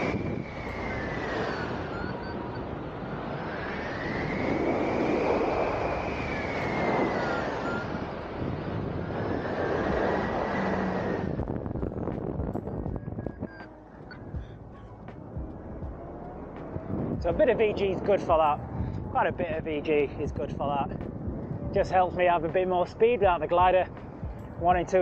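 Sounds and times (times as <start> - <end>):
whistling tone rising and falling: 0.0 - 8.1, 12.6 - 14.4
rushing wind: 0.0 - 25.0.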